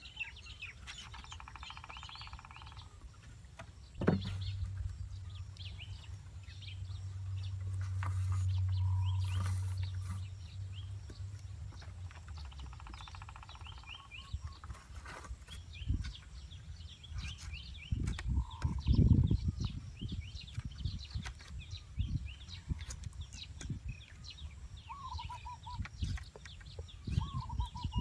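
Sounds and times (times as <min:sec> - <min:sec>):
birds chirping: 0:00.0 - 0:28.0.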